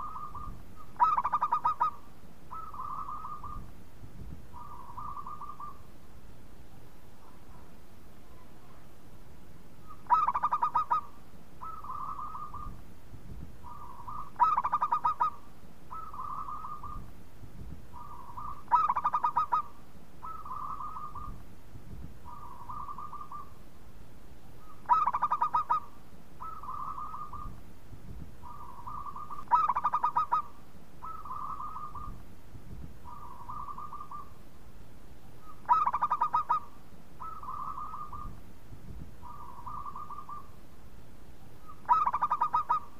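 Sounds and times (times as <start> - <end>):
dove cooing: 0.0 - 3.7, 4.5 - 5.9, 9.8 - 12.8, 13.6 - 17.1, 17.9 - 21.4, 22.2 - 23.6, 24.6 - 27.6, 28.4 - 32.2, 33.0 - 34.4, 35.4 - 38.4, 39.2 - 40.6, 41.6 - 42.9.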